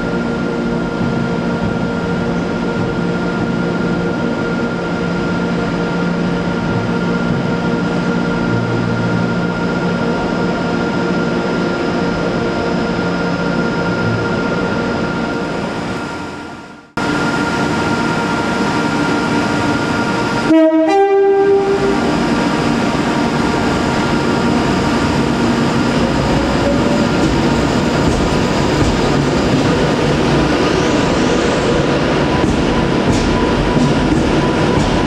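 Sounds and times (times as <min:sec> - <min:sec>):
electric train rumbling: 0:00.0 - 0:35.0
train horn two notes: 0:20.4 - 0:22.2.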